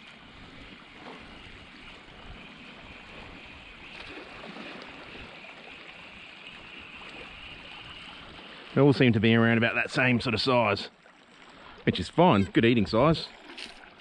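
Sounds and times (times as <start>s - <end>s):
sea water lapping on rocks: 7.1s - 14.0s.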